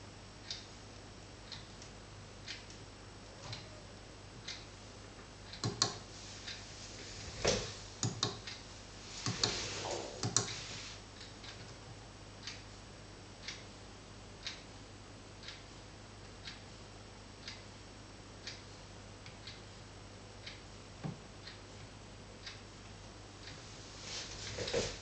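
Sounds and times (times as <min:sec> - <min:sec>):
low steady hum: 0:00.0 - 0:25.0
irregular clicks and knocks: 0:04.4 - 0:06.6, 0:07.4 - 0:08.6, 0:09.2 - 0:10.6.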